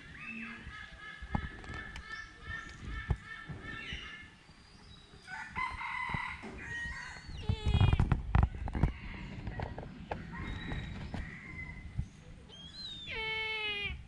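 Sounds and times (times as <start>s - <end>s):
bird calls: 0.0s - 5.4s, 9.9s - 13.9s.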